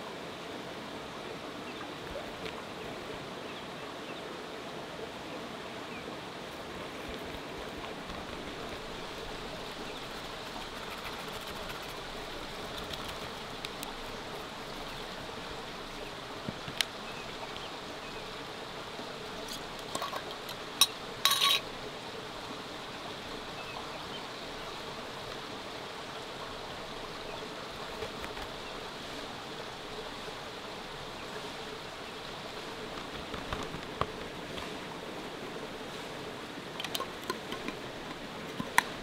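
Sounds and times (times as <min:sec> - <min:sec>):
river water rushing: 0:00.0 - 0:39.0
metallic clinks of cooking utensils: 0:20.8 - 0:21.6.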